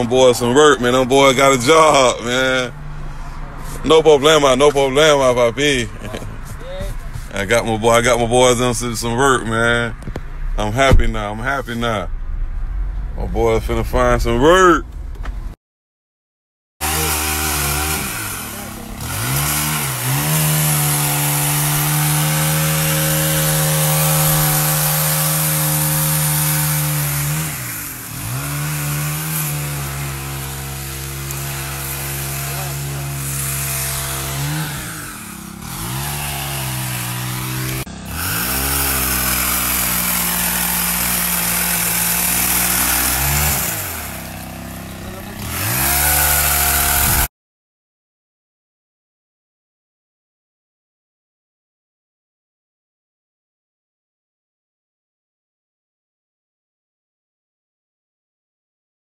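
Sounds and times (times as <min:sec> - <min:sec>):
pole saw engine revving: 0:00.0 - 0:02.8, 0:16.8 - 0:47.3.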